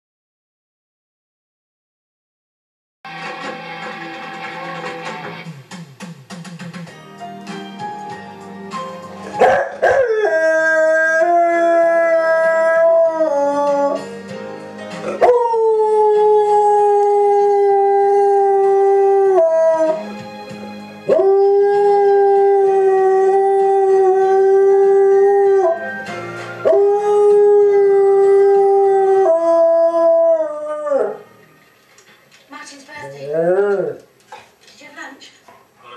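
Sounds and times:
television theme music: 3.1 - 33.4
dog howling: 9.4 - 14.0, 33.1 - 34.0.

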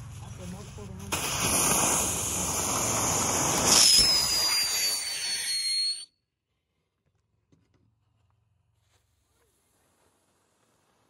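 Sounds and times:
firework fountain hissing: 0.0 - 6.0, 9.2 - 11.0
high firework whistle: 1.1 - 6.2.

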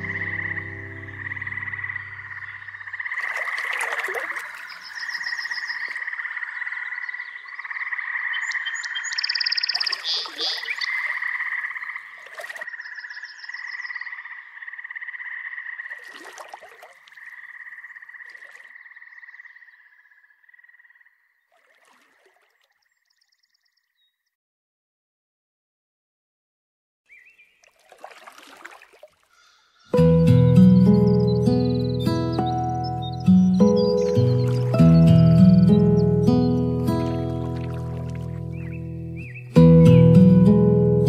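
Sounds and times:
chorus of croaking animal calls: 0.0 - 21.2, 29.3 - 30.0.

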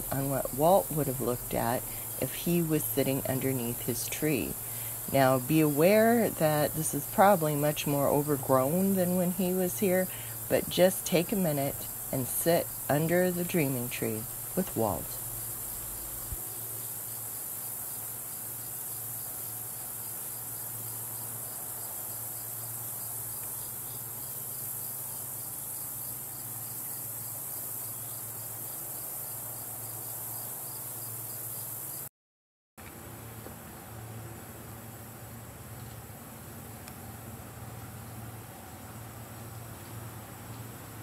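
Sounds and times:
insects droning chorus: 0.0 - 32.1.

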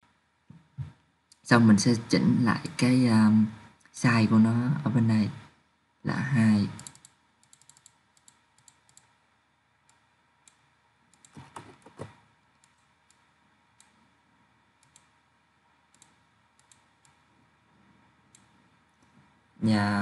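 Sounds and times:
computer mouse clicks: 6.7 - 9.2, 9.8 - 14.0, 14.8 - 15.2, 15.9 - 17.3, 18.3 - 19.2
keyboard key taps: 11.2 - 12.2.

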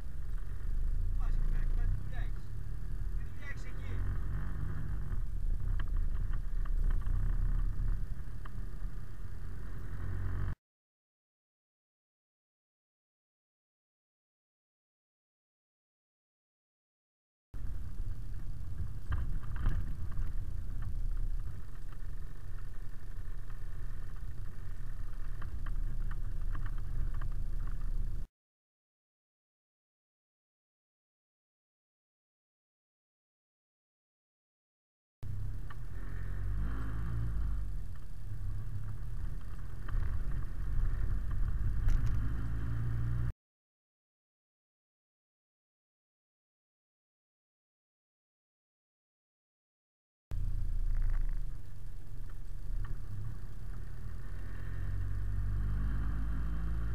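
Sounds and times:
truck engine and road rumble: 0.0 - 10.6, 17.6 - 28.3, 35.2 - 43.3, 50.3 - 56.9
light rattles and clicks: 5.0 - 8.9, 17.6 - 28.3, 37.6 - 42.3, 50.4 - 54.6.

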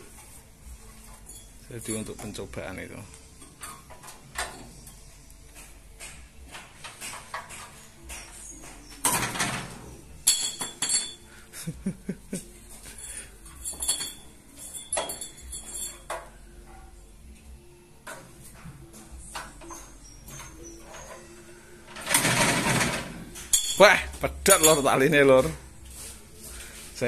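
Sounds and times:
metal clinks and knocks: 0.8 - 2.5, 3.4 - 11.3, 12.7 - 16.9, 22.0 - 25.1.

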